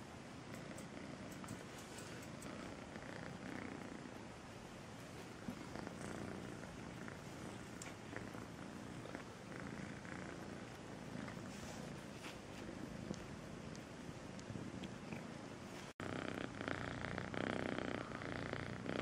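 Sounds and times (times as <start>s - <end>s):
faint ticks: 0.5s - 2.6s
kitten purring: 0.5s - 4.3s, 5.1s - 19.0s.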